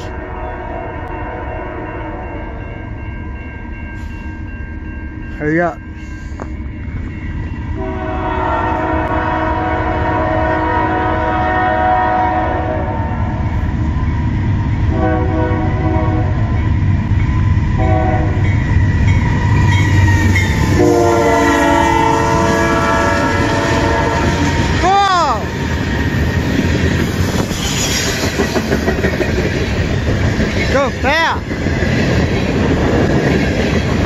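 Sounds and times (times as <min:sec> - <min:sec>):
locomotive engines rumbling: 0:02.1 - 0:34.0
train wheels on rails: 0:02.2 - 0:08.0, 0:13.1 - 0:34.0
locomotive air horn: 0:07.8 - 0:13.4, 0:14.9 - 0:16.4, 0:17.8 - 0:18.5, 0:19.3 - 0:24.8.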